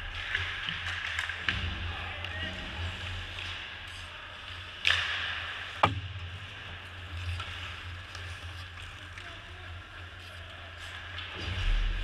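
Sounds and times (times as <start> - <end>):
sharp knock: 5.8 - 6.0.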